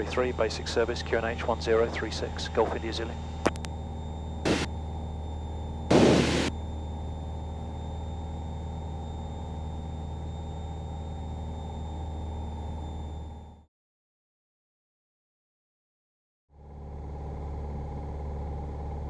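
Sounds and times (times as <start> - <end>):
aircraft engine and propeller droning: 0.0 - 13.6, 16.6 - 19.0
click: 3.4 - 3.7.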